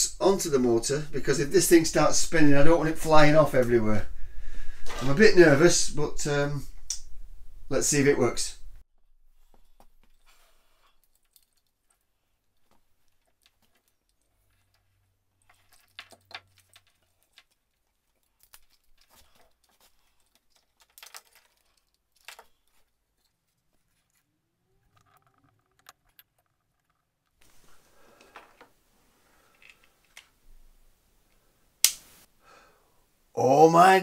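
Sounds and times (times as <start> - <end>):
wires and plastic connectors clicking: 9.8 - 27.4, 29.5 - 30.4.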